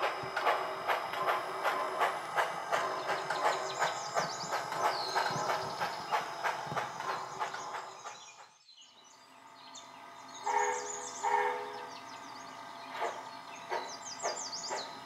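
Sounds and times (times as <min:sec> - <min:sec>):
steam locomotive chuffing: 0:00.0 - 0:15.0
steam whistle blasts: 0:10.4 - 0:11.9.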